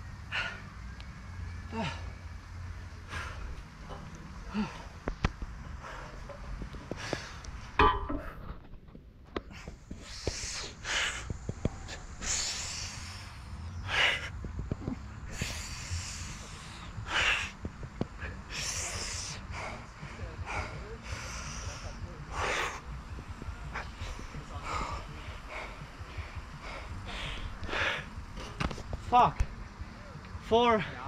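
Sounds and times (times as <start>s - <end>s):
man breathing hard: 4.4s - 7.6s, 9.4s - 14.4s, 15.2s - 28.9s.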